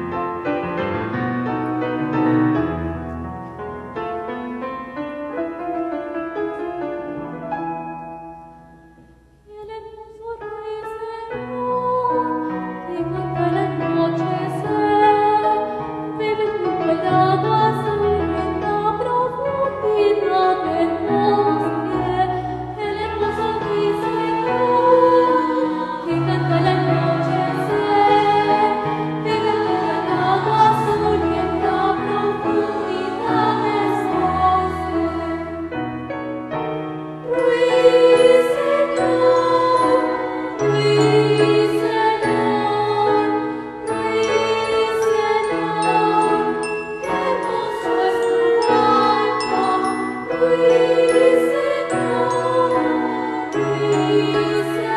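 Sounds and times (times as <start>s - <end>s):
keyboard chords: 12.6s - 54.9s
person singing: 37.3s - 54.9s.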